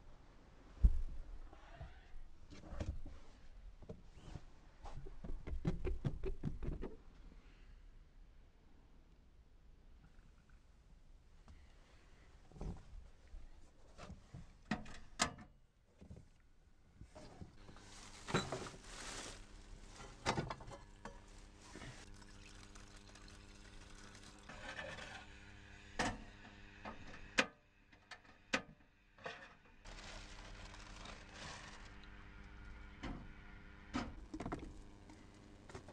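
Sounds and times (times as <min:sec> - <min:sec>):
plastic bag rustling: 0:17.6 - 0:20.2, 0:29.9 - 0:32.1
water poured into metal pot: 0:21.7 - 0:24.6.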